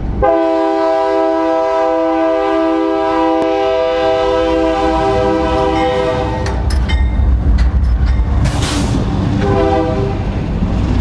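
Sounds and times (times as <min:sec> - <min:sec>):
locomotive air horn chord: 0:00.2 - 0:06.7, 0:09.4 - 0:10.2
locomotive low rumble: 0:03.4 - 0:11.0.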